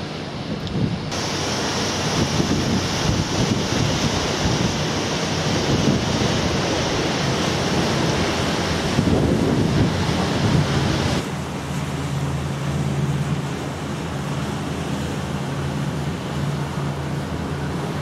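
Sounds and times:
wind buffeting microphone: 0.3 - 11.3
sea rushing hiss: 1.1 - 18.0.

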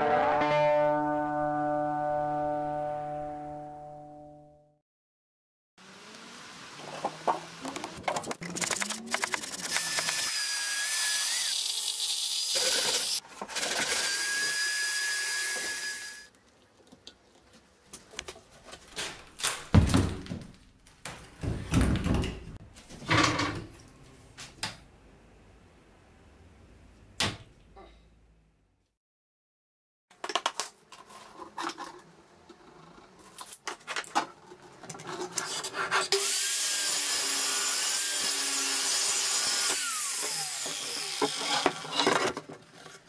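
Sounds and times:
power tool whining on wood: 9.7 - 16.3, 36.2 - 42.0
knocks and clunks of handling: 19.0 - 23.7.

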